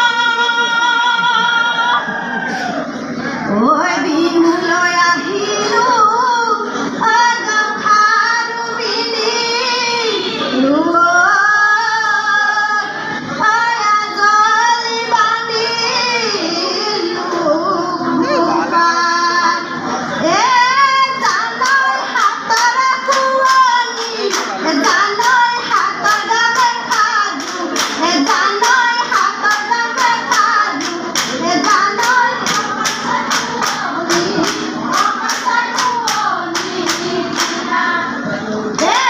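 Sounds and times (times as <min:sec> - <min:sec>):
women's group singing: 0:00.0 - 0:39.0
steady hand clapping: 0:21.2 - 0:37.8.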